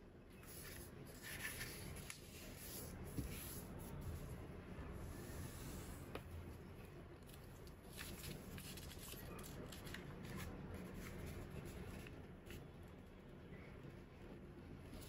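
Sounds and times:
paper rustling and crackling: 0.4s - 3.7s, 7.2s - 12.6s.

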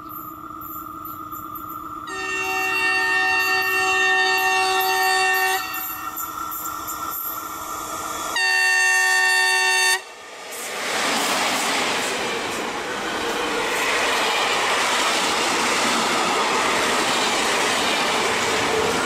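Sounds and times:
locomotive horn blasts: 2.1s - 6.2s, 8.4s - 10.1s.

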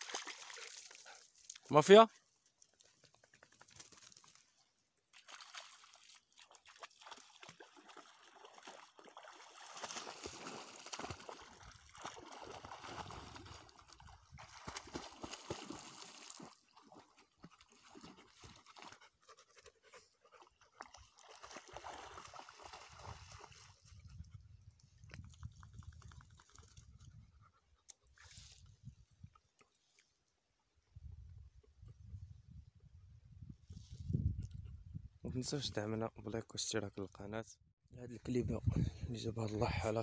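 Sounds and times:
dog splashing through water: 0.0s - 1.6s, 5.1s - 19.6s, 20.3s - 24.0s.

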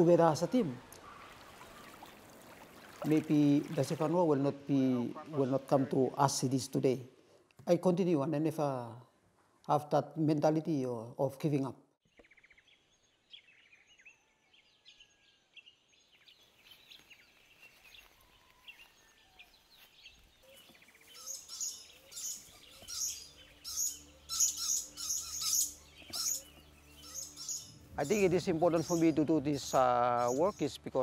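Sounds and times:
high-pitched bird chirping: 20.5s - 30.7s.

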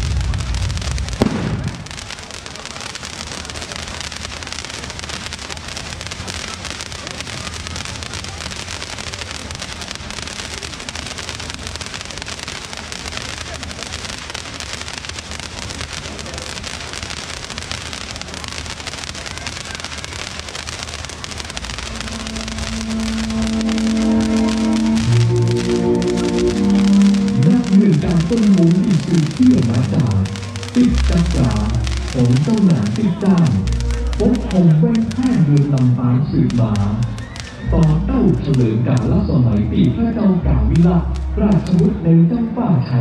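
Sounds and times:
low rumble: 0.0s - 2.1s, 21.4s - 43.0s
firework bang: 0.0s - 39.1s
fireworks crackling hiss: 0.0s - 43.0s.

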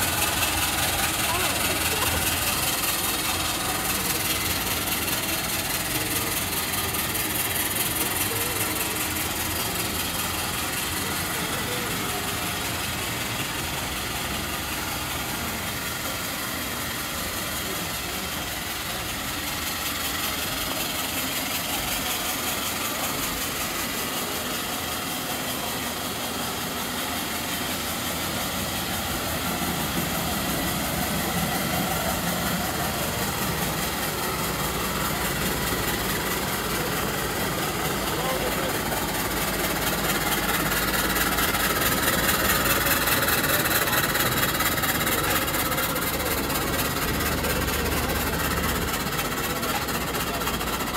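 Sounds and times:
low mechanical rumble: 0.0s - 50.9s
steam hissing: 0.0s - 50.9s.

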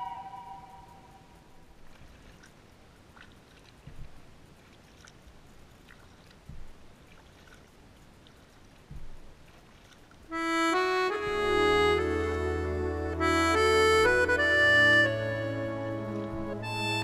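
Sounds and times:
small ticks: 1.3s - 10.4s
water drips and trickles: 1.5s - 10.4s
low thumps: 6.5s - 6.8s, 8.9s - 9.3s, 12.8s - 17.0s.

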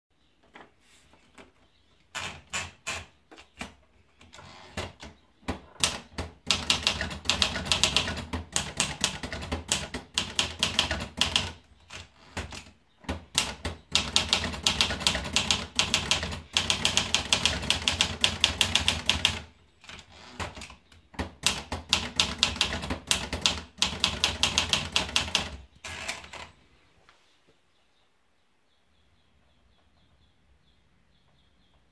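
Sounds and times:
manual typewriter typing: 2.2s - 26.5s.

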